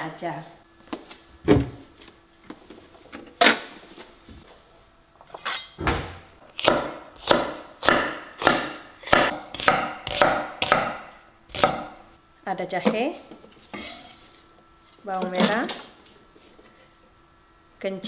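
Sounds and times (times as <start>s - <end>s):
knife chopping on wooden board: 6.6s - 12.0s.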